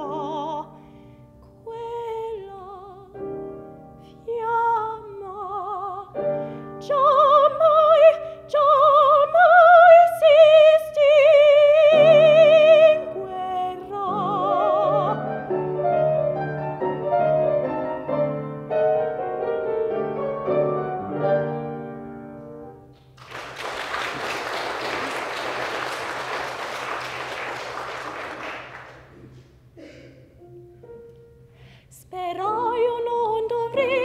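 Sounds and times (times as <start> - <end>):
woman singing with vibrato: 0.0 - 0.7, 1.6 - 3.2, 4.2 - 6.2, 6.8 - 15.4, 31.9 - 34.0
piano playing: 0.0 - 34.0
audience applauding: 23.0 - 29.4.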